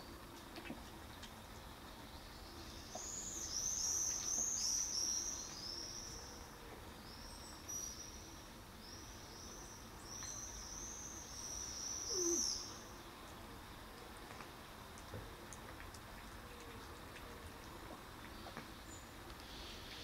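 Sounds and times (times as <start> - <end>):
small bird chirping: 2.1 - 6.3, 7.0 - 13.4.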